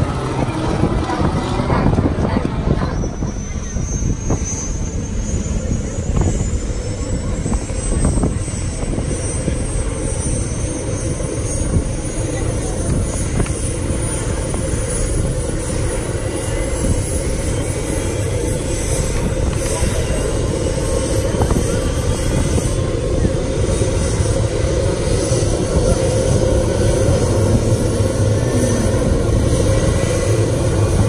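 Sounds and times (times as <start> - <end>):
helicopter engine and rotor: 0.0 - 31.0
high turbine whine: 0.0 - 31.0.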